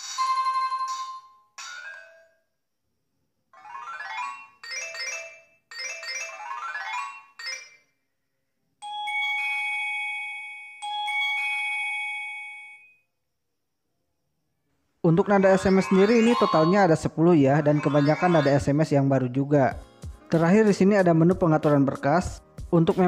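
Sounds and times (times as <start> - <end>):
bell-like phone ding: 0.0 - 2.4.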